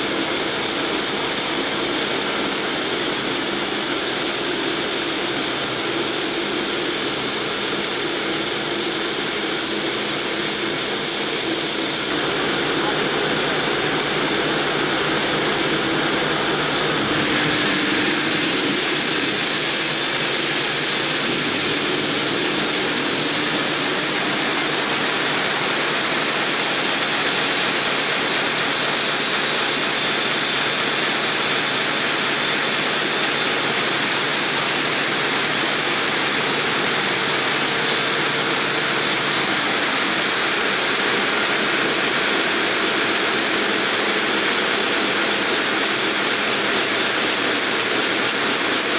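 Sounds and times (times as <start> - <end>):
high whine: 11.9 - 26.8.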